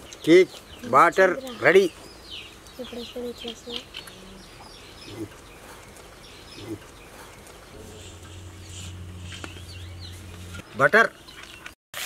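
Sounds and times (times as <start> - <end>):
farm animal calls: 2.8 - 11.6
steady low hum: 4.8 - 10.7.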